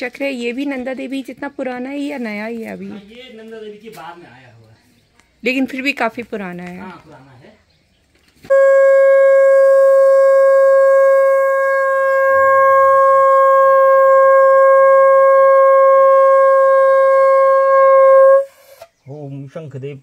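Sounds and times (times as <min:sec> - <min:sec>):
conch shell blown: 0:08.5 - 0:18.8.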